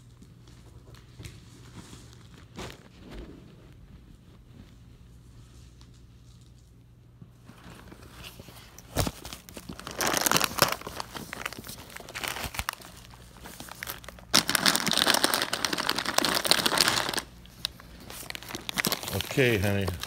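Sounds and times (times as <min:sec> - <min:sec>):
plastic bags crinkling: 0:07.6 - 0:20.0.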